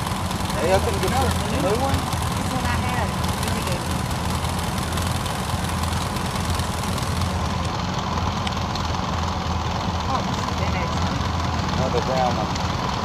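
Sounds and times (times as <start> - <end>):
vehicle engine idling: 0.0 - 13.0.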